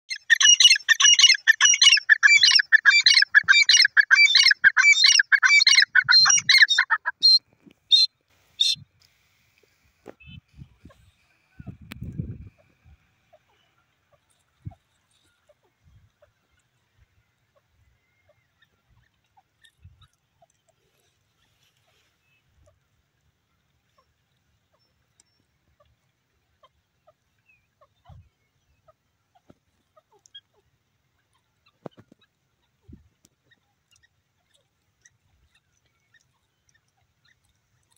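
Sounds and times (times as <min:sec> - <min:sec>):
bird calling: 0:00.1 - 0:08.8.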